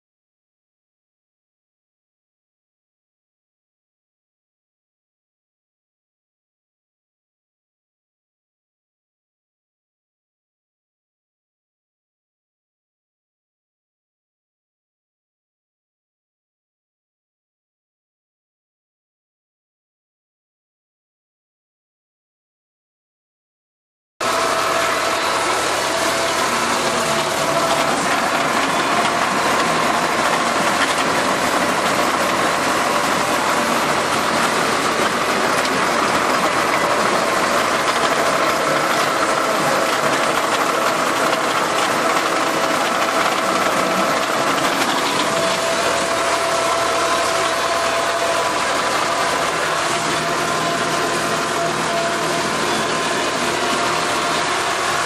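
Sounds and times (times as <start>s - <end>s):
tractor engine drone with whine: 24.2s - 55.0s.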